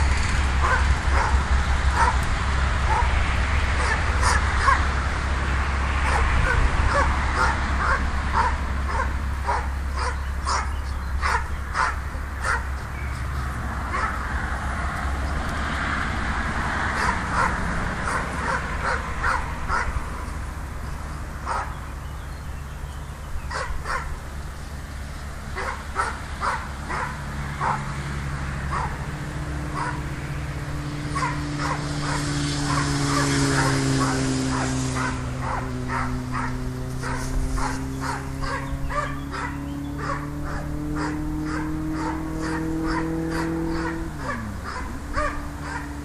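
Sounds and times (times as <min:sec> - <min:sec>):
dog barking: 0:00.6 - 0:02.2, 0:02.9 - 0:03.2, 0:03.8 - 0:04.9, 0:06.0 - 0:12.8, 0:13.9 - 0:14.2, 0:17.0 - 0:20.0, 0:21.4 - 0:21.8, 0:23.5 - 0:24.2, 0:25.6 - 0:27.9, 0:28.7 - 0:29.0, 0:29.8 - 0:30.0, 0:31.1 - 0:46.0.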